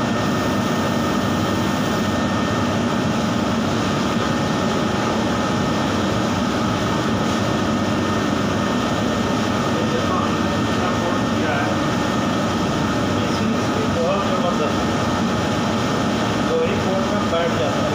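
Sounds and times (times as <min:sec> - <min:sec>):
extraction fan drone: 0:00.0 - 0:17.9.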